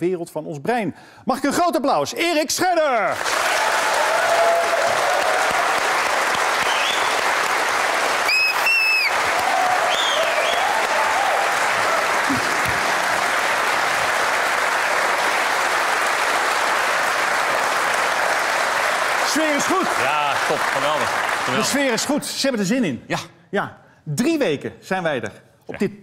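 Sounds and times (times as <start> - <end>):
audience applauding: 3.0 - 22.3.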